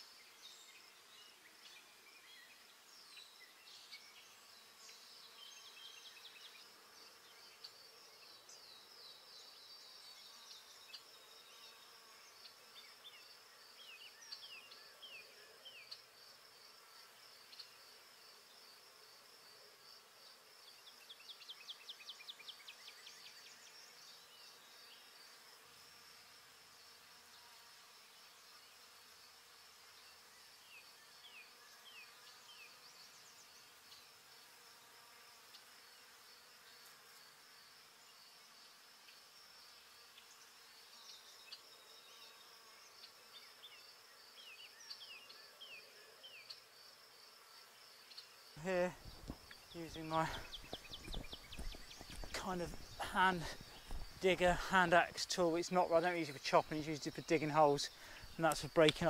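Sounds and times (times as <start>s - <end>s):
high-pitched insect buzz: 3.2s - 59.0s
bird chirps: 48.1s - 55.0s.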